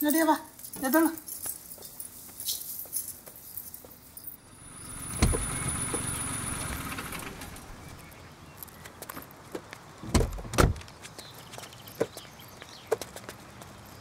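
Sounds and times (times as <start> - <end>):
car door slamming shut: 5.1 - 6.0, 10.0 - 10.9
thump: 5.2 - 5.5.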